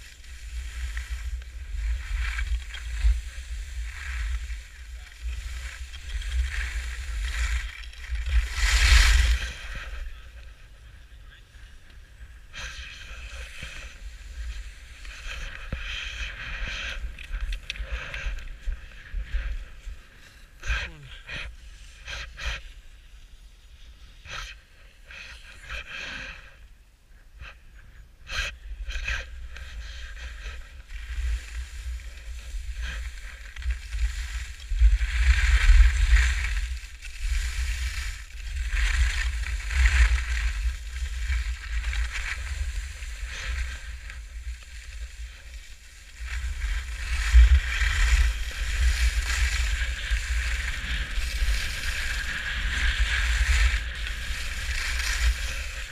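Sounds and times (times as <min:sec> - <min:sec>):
skis scraping packed snow: 0:00.0 - 0:20.6, 0:28.8 - 0:55.9.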